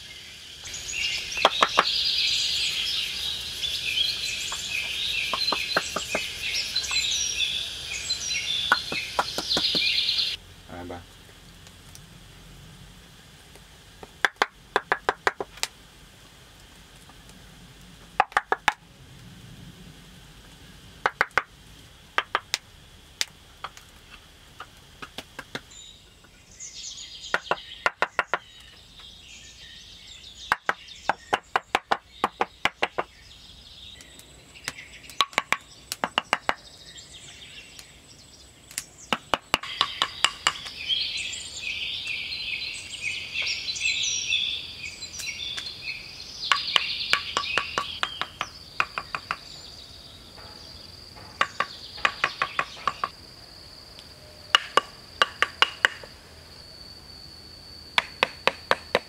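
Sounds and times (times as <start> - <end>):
birds singing: 0.0 - 11.0, 25.4 - 53.2
insects chirping: 0.0 - 59.0
wooden blocks clacking: 14.0 - 15.6, 18.2 - 18.8, 21.0 - 21.5, 35.2 - 36.6, 51.3 - 53.1.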